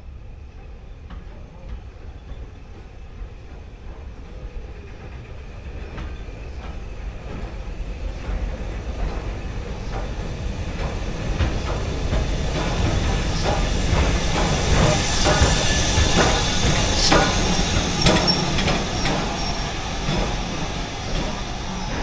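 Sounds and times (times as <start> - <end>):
steam locomotive rumble: 0.0 - 22.0
steam hissing: 7.0 - 22.0.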